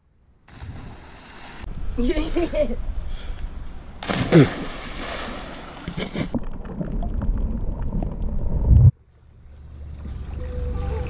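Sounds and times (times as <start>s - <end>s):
loud splash into water: 4.0s - 5.8s
muffled underwater rumbling: 6.0s - 11.0s.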